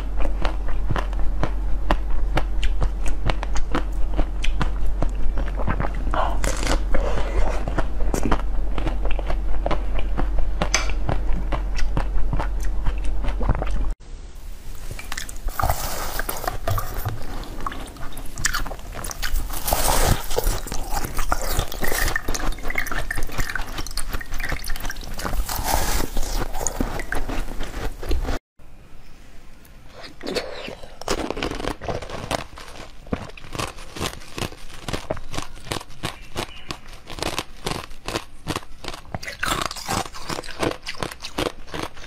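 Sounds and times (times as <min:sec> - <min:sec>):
crisp bites and chewing: 0:00.0 - 0:13.9, 0:15.0 - 0:28.4, 0:30.0 - 0:42.0
low hum: 0:00.0 - 0:30.0
crunching frozen ice: 0:15.2 - 0:28.4, 0:30.0 - 0:42.0.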